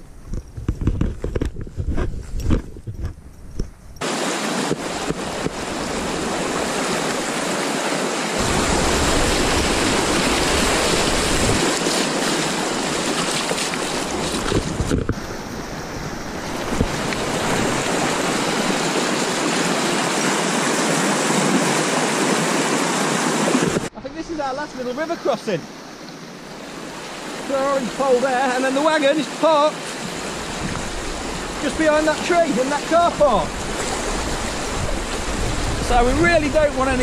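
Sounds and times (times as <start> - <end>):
wind buffeting microphone: 0.0 - 4.0, 8.4 - 19.6, 30.0 - 32.1, 33.0 - 37.0
river rushing over stones: 4.0 - 37.0.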